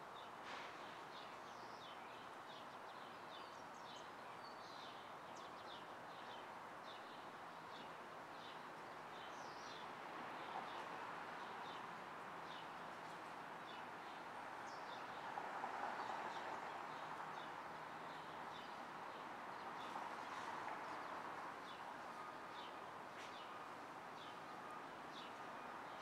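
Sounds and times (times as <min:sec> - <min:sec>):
traffic hum with passing vehicles: 0:00.1 - 0:26.0.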